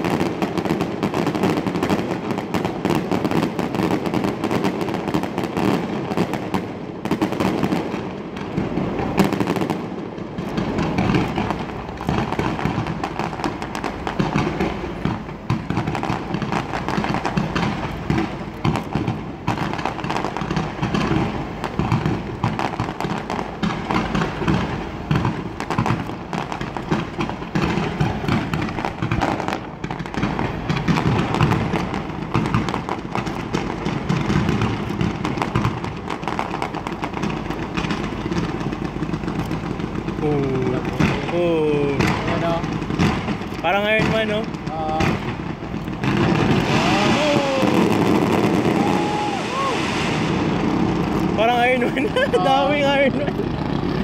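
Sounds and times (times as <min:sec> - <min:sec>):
fireworks bangs and crackling: 0:00.0 - 0:54.0.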